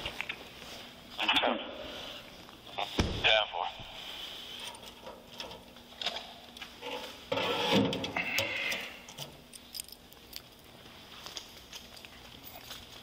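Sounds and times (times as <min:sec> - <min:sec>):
metal scrape: 0:06.8 - 0:08.7.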